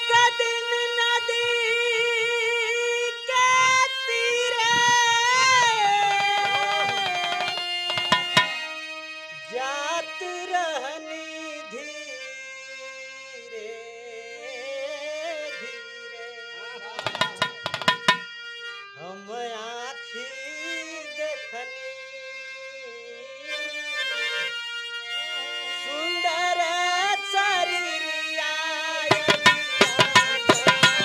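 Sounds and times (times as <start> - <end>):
harmonium melody: 0.0 - 31.0
dholak drum strokes: 4.5 - 8.8, 17.0 - 18.4, 29.0 - 31.0.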